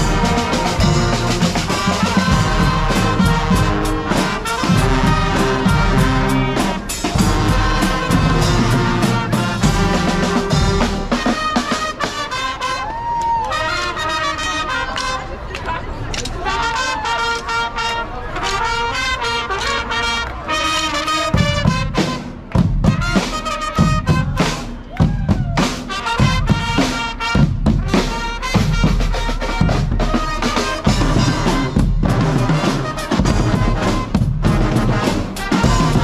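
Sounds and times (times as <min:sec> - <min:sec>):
heavy drum beat: 0:00.0 - 0:12.2, 0:21.3 - 0:36.0
brass band playing loudly: 0:00.0 - 0:36.0.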